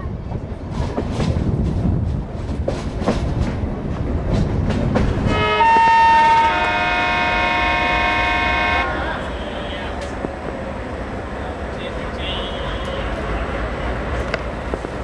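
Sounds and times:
train rumbling: 0.0 - 15.0
locomotive horn blast: 5.3 - 10.0.

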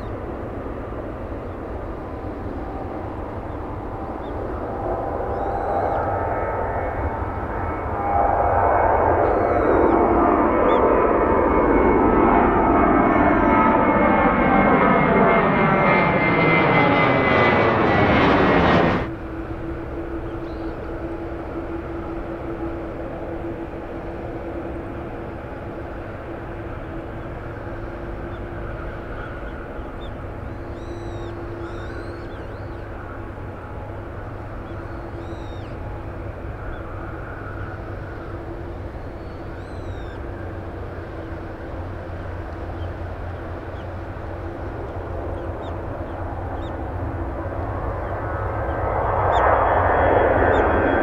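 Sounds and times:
distant jet engine rumble: 0.0 - 51.0
jet engines at takeoff thrust: 0.0 - 51.0
small birds chirping: 5.3 - 6.0, 20.3 - 20.8, 27.2 - 33.0, 34.4 - 35.9, 38.4 - 40.3, 42.6 - 46.9.

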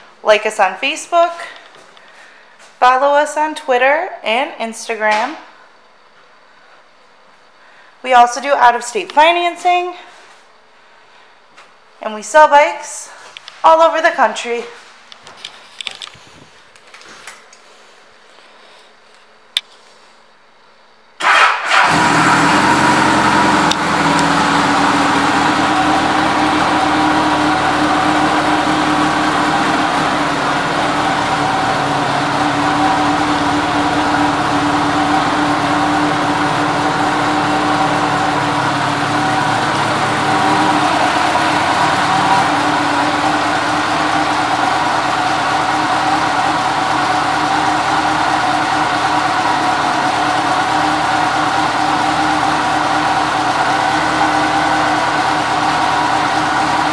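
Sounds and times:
motorcycle engine idling: 21.4 - 56.9.

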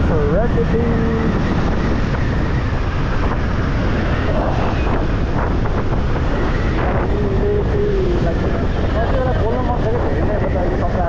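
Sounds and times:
vehicle rumble: 0.0 - 11.0
wind buffeting microphone: 0.0 - 11.0.

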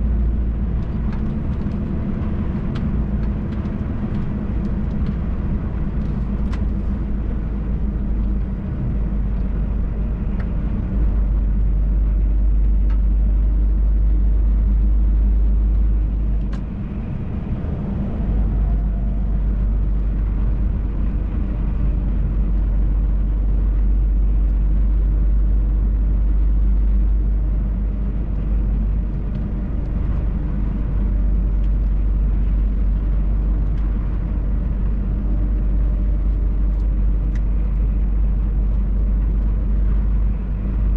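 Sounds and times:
truck engine and road rumble: 0.0 - 40.9.

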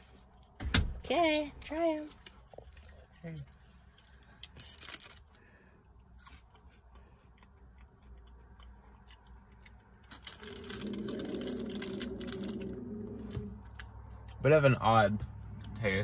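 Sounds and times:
low steady hum: 0.0 - 16.0
crunching while chewing: 2.2 - 14.6
plastic snack bag crinkling: 4.4 - 5.4, 10.0 - 13.1.

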